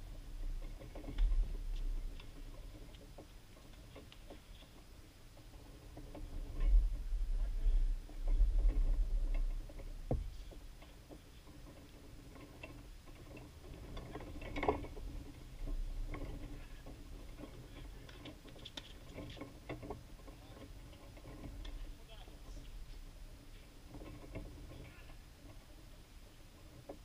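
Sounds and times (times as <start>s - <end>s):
wind rumbling on microphone: 0.0s - 27.0s.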